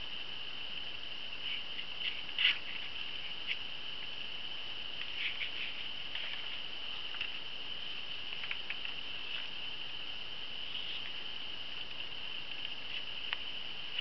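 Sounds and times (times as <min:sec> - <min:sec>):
high-pitched background whine: 0:00.0 - 0:14.0
paper pages rustling: 0:05.1 - 0:07.4.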